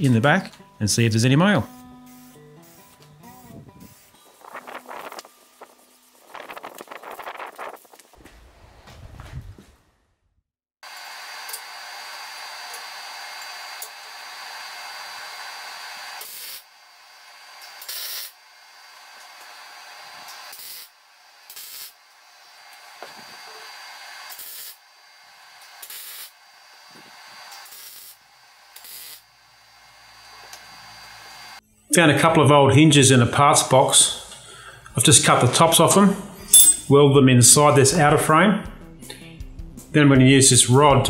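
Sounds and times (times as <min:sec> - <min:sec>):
welder arc sizzling: 0:01.6 - 0:08.2, 0:10.9 - 0:31.7.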